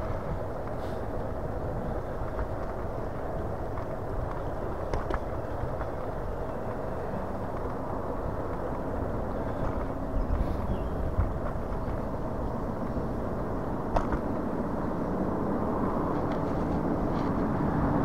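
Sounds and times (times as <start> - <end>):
wind and tyre rumble: 0.0 - 18.0.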